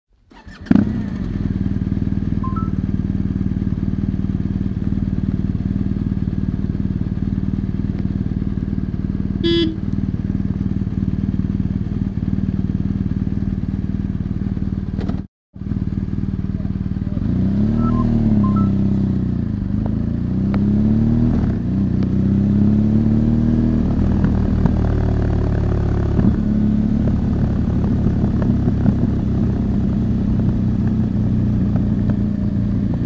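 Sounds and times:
motorcycle engine idling: 0:00.3 - 0:19.9
brief high-pitched sound: 0:02.4 - 0:02.8, 0:17.7 - 0:18.8.

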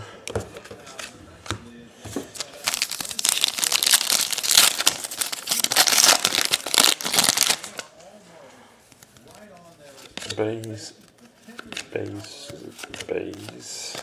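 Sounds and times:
plastic wrapper crinkling: 0:02.3 - 0:07.9.

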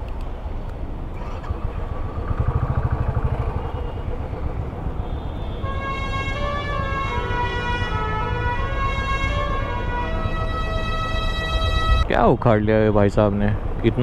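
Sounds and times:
motorcycle engine running: 0:01.2 - 0:07.4.

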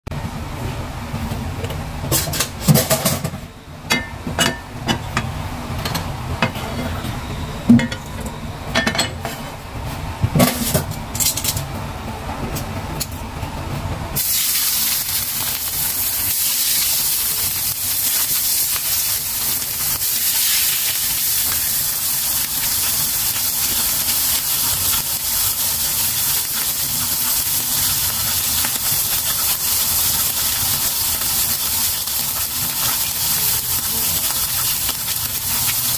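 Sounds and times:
fish frying in oil: 0:14.2 - 0:35.9.

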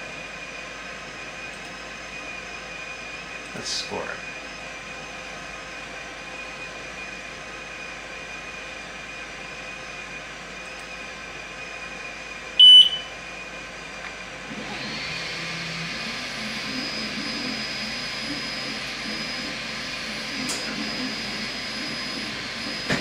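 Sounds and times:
fan rushing with rising whine: 0:00.0 - 0:23.0
short high beeps: 0:12.6 - 0:13.1
laser engraver humming: 0:14.6 - 0:23.0.

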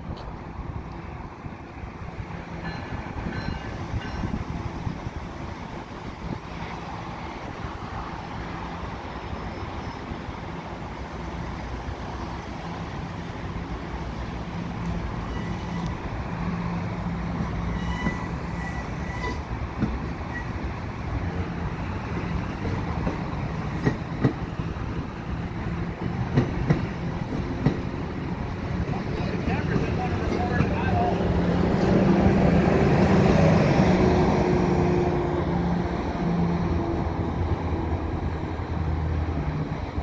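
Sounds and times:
train rolling past: 0:00.0 - 0:40.0
faint wheel squeal: 0:15.2 - 0:16.0, 0:17.7 - 0:19.5.

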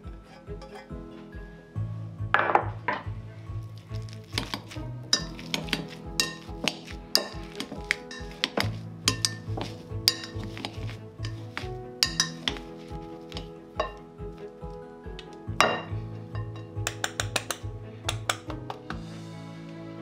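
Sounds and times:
background music: 0:00.0 - 0:20.0
masher clinking against glass bowl: 0:12.0 - 0:12.6.

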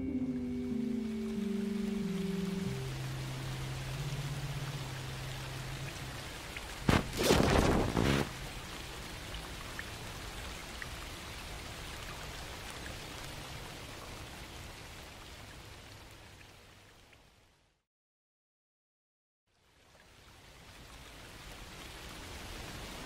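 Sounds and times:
low held tone: 0:00.0 - 0:03.2
rain-like hiss: 0:00.1 - 0:17.8, 0:19.5 - 0:23.0
sharp crack: 0:06.8 - 0:08.3
loud rumbling burst: 0:06.9 - 0:08.4.

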